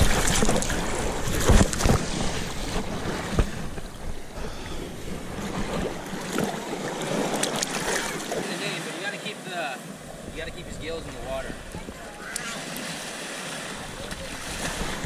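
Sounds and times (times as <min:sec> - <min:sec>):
surf splashing around legs: 0:00.0 - 0:15.0
wind buffeting microphone: 0:10.0 - 0:12.2, 0:13.8 - 0:15.0.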